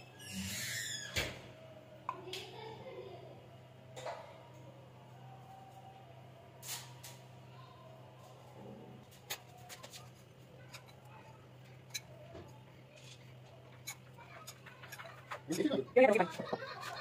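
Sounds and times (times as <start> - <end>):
metal spoon clicking on dishes: 11.9 - 12.2, 13.8 - 17.0.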